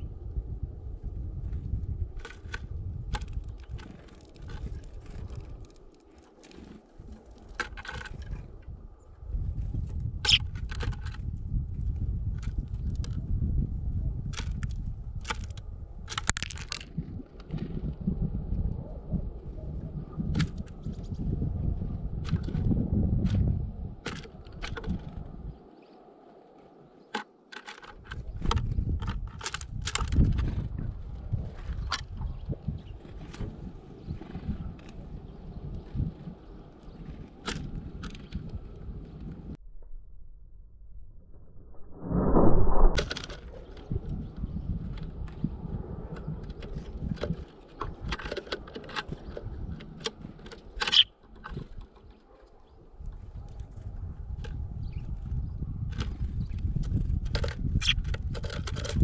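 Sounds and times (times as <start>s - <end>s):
wind rumble on microphone: 0.0s - 27.0s, 27.8s - 59.0s
bird pecking seeds on wood: 14.4s - 16.9s, 27.1s - 30.4s, 46.5s - 52.2s
low rumble: 39.5s - 43.1s.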